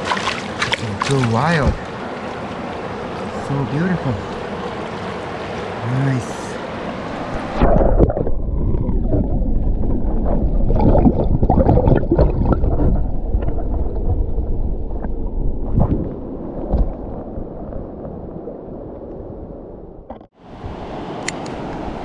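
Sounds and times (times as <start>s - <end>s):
river water churning and splashing: 0.0s - 15.0s.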